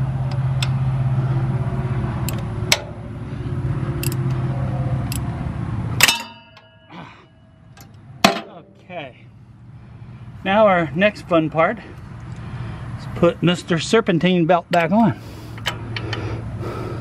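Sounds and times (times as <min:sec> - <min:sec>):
ratchet wrench clinking on bolt: 0:04.0 - 0:04.4
loud metallic clang: 0:06.0 - 0:06.9, 0:08.2 - 0:08.8.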